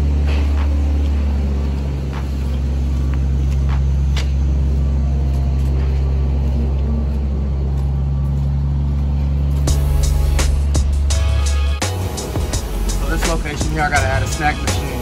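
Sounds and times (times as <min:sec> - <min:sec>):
footsteps: 0:00.0 - 0:11.0
engine idling: 0:00.0 - 0:15.0.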